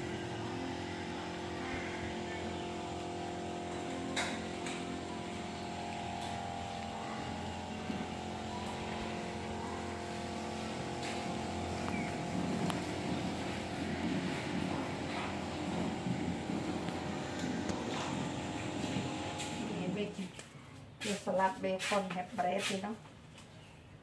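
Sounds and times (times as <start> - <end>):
motor droning: 0.0 - 20.4.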